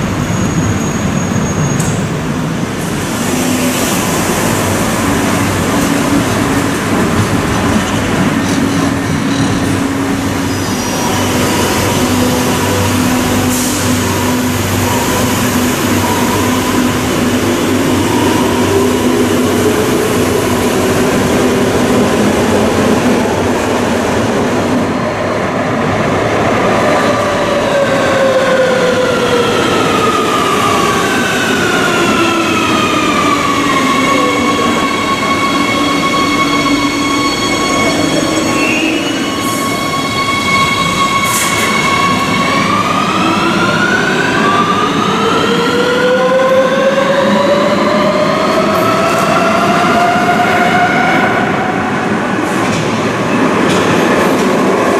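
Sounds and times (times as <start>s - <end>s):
train wheels rumbling on rail: 0.0s - 54.9s.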